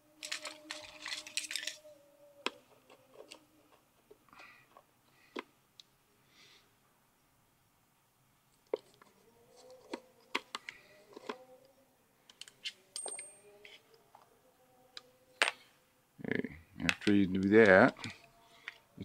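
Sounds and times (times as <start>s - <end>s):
small metal parts clinking: 0.2s - 1.9s, 12.4s - 13.8s.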